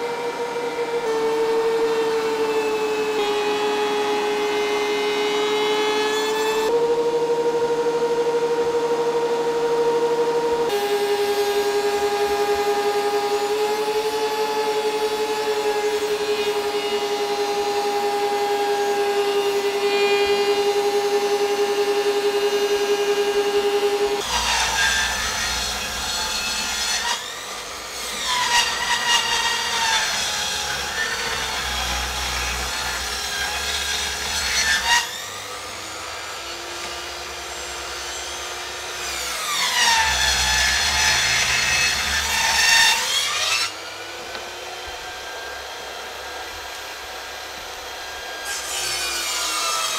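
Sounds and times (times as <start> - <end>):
circular saw cutting wood: 0.0 - 49.9
saw humming: 0.0 - 49.9.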